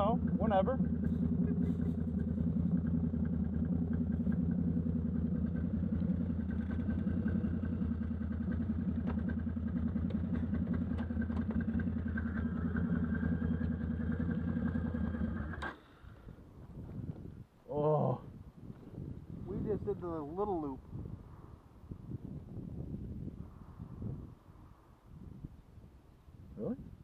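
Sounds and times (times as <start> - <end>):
atv engine running: 0.0 - 17.3.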